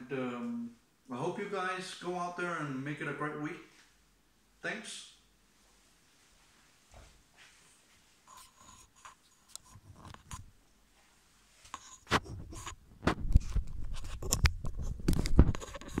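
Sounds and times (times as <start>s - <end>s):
device handling knocks and rubbing: 11.8s - 16.0s.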